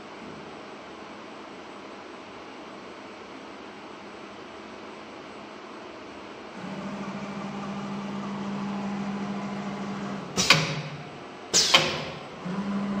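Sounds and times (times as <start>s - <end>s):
tool changer sharp bursts: 7.6s - 13.0s
router motors humming: 12.2s - 13.0s.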